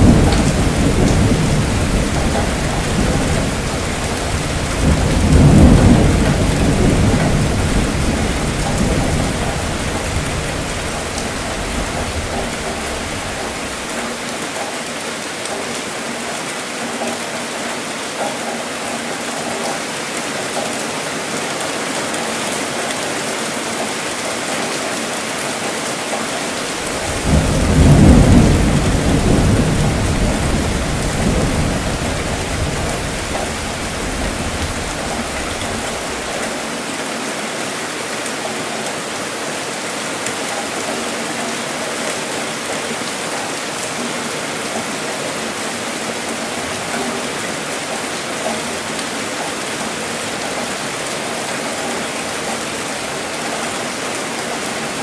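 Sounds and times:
deep thunder rumble: 0:00.0 - 0:13.9, 0:26.7 - 0:36.4
heavy rainfall: 0:00.0 - 0:55.0.

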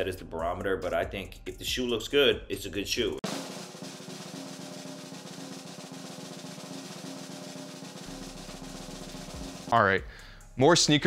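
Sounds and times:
snare drum roll: 0:03.2 - 0:09.9.

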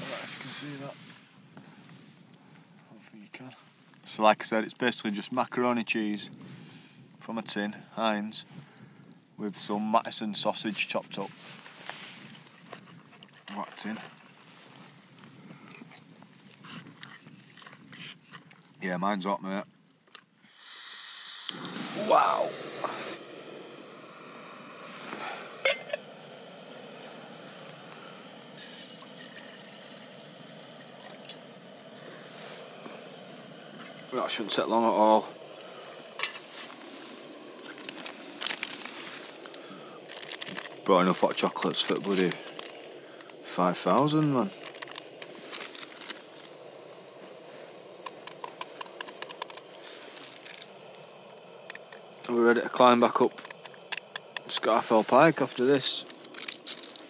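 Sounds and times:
gas camping stove hissing: 0:00.0 - 0:18.2, 0:20.2 - 0:57.0
water pouring into pot: 0:21.4 - 0:50.7.

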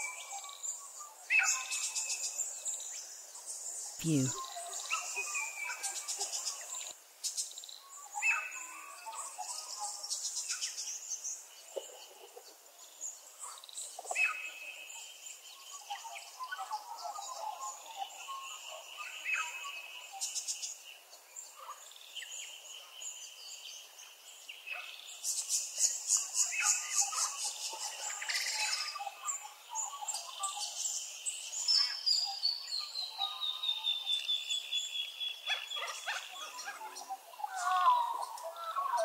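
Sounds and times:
songbirds chirping and trilling: 0:00.0 - 0:39.0.

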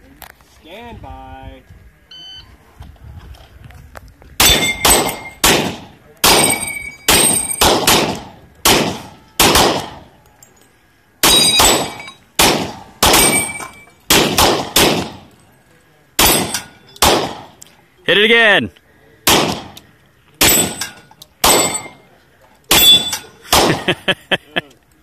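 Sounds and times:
steel targets clanging: 0:04.4 - 0:05.4, 0:06.2 - 0:07.7, 0:08.9 - 0:14.1, 0:15.0 - 0:17.4, 0:20.4 - 0:23.5
rapid handgun fire: 0:04.4 - 0:10.1, 0:11.2 - 0:13.5, 0:14.1 - 0:15.3, 0:16.2 - 0:17.6, 0:19.2 - 0:19.8, 0:21.4 - 0:21.9, 0:22.7 - 0:23.9.

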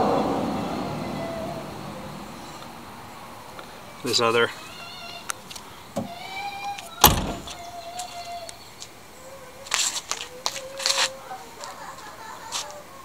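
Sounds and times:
car door slamming: 0:07.0 - 0:07.6.

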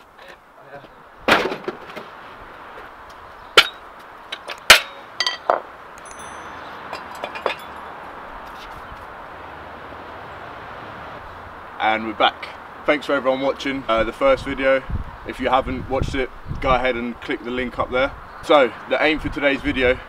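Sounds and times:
metal tools clinking on paving: 0:03.6 - 0:07.9
high metallic ding: 0:06.0 - 0:06.8.

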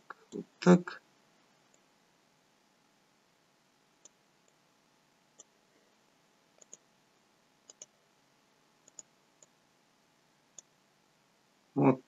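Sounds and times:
computer mouse clicks: 0:04.0 - 0:04.6, 0:06.6 - 0:06.8, 0:07.6 - 0:07.9, 0:08.8 - 0:09.5.

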